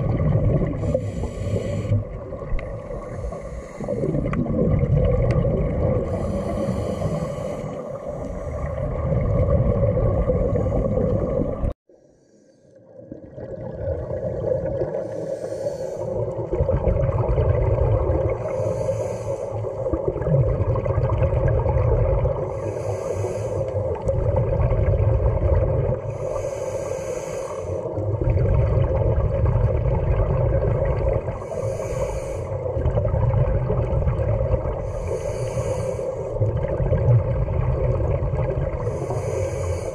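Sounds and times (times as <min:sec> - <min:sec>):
water hum and rumble: 0:00.0 - 0:39.9
regulator exhaust bubbles: 0:03.9 - 0:06.2, 0:32.6 - 0:35.0.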